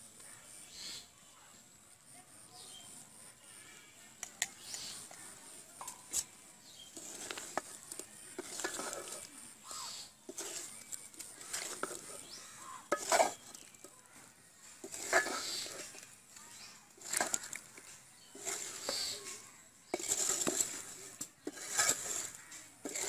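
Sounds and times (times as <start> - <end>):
spatula scraping a metal pan: 5.9 - 23.0.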